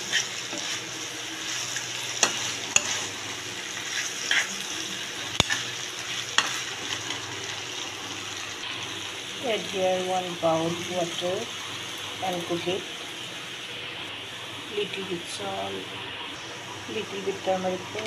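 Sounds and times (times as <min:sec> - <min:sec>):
spoon scraping pan: 0:00.0 - 0:07.2
chicken sizzling in oil: 0:00.0 - 0:18.0.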